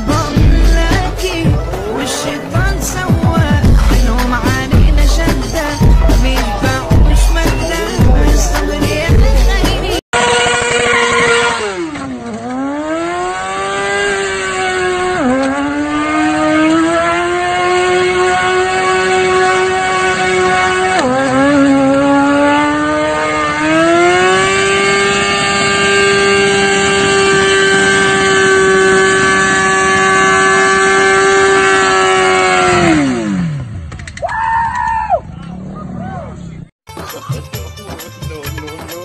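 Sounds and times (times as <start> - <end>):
motorcycle engine revving hard: 10.2 - 34.0.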